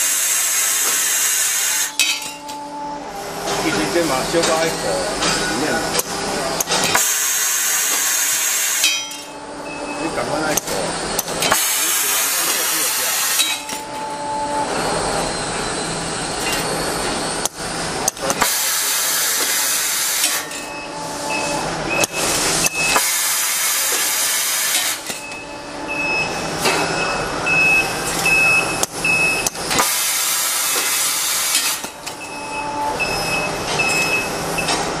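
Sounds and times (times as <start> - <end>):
grinder hissing: 10.1 - 13.7.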